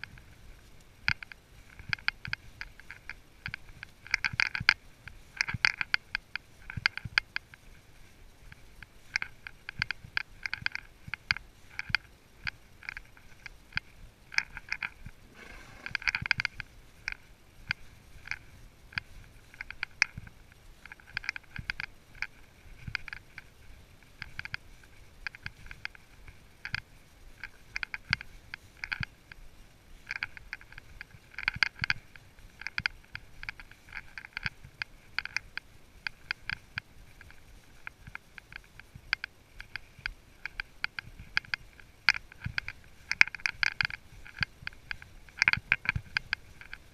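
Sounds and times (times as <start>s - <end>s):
horse hooves thudding softly: 0.0s - 46.9s
riding gear clicking and rattling: 0.0s - 46.9s
rustle: 0.0s - 46.9s.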